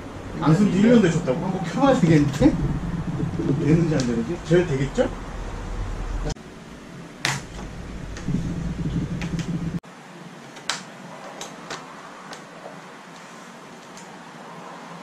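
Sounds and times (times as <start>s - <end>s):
low hum: 0.0s - 9.8s.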